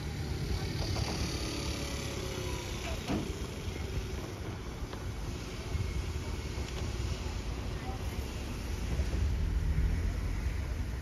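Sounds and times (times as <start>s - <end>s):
moped driving past: 0.0s - 3.8s.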